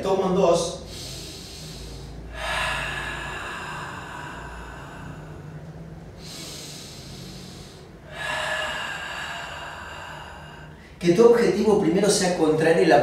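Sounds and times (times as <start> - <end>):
man breathing out emphatically: 0.8 - 11.0.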